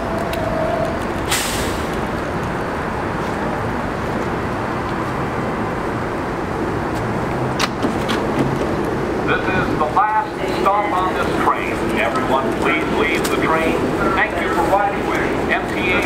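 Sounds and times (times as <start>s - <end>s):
train equipment humming: 0.0s - 16.0s
air hissing: 1.2s - 2.0s.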